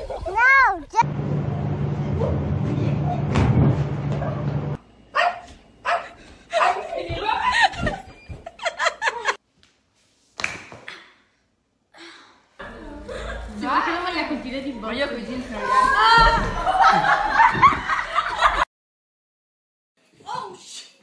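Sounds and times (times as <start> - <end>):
low hum: 1.0 - 5.1
people laughing: 6.4 - 9.4, 15.6 - 18.7
people talking: 6.7 - 8.0, 12.6 - 16.7.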